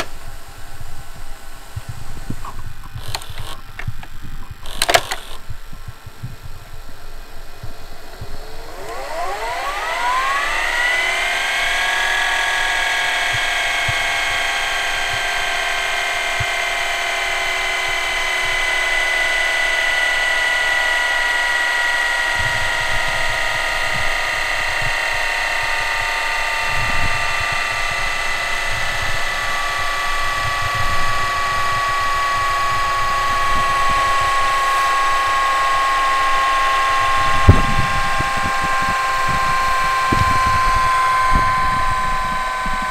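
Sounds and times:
tape transport whine: 0.0 - 42.9
sharp click: 2.4 - 5.4.

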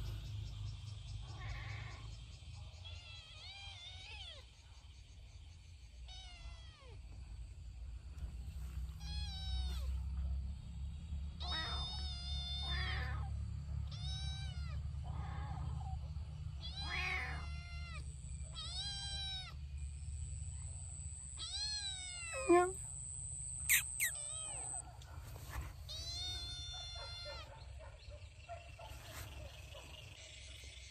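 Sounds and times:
kitten meowing: 16.6 - 18.0, 21.4 - 22.8, 23.6 - 24.8
thin high steady tone: 22.4 - 24.3.

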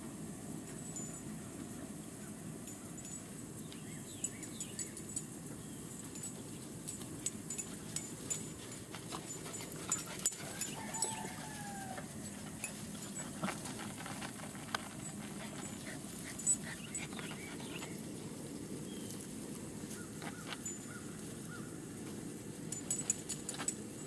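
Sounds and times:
puppies whining: 7.4 - 18.2.

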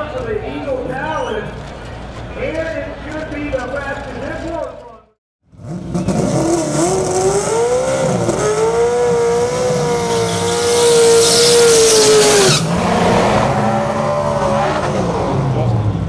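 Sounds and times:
car engine revving: 5.5 - 16.0
tyres spinning and squealing: 9.6 - 15.2.

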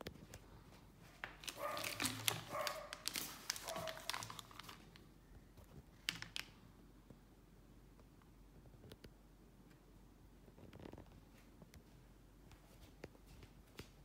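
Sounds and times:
plastic bags crinkling: 1.2 - 5.1, 6.0 - 6.6.

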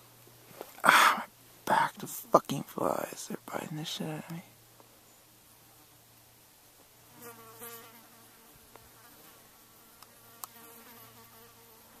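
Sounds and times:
flies buzzing: 6.8 - 12.0.

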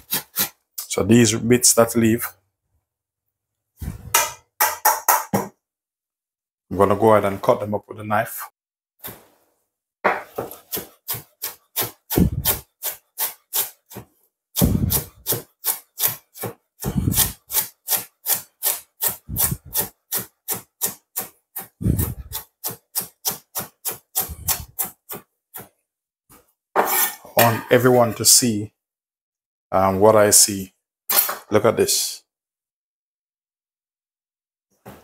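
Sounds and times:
knife chopping on wooden board: 14.6 - 17.4.

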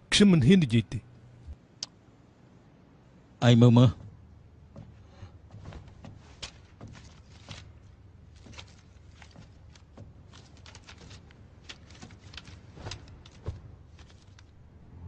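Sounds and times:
light clicks and knocks: 3.9 - 14.6.

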